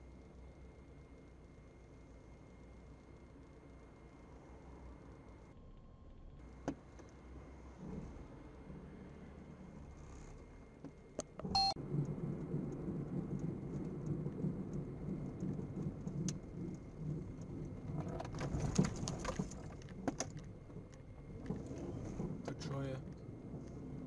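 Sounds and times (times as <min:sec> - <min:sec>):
car engine and tyres rumbling: 0:00.0 - 0:24.0
short electronic beep: 0:11.5 - 0:11.8.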